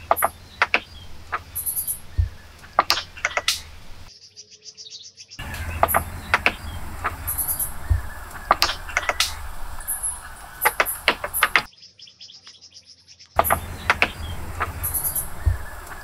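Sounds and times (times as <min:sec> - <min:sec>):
small birds chirping: 0:00.0 - 0:16.0
wooden knocks on cabin frame: 0:02.1 - 0:03.5, 0:07.8 - 0:09.4, 0:13.4 - 0:15.7.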